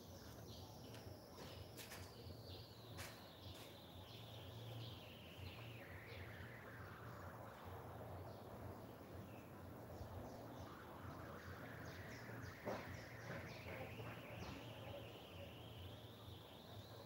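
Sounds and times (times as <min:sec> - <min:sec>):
faint whine sliding down in pitch: 0:04.3 - 0:17.0.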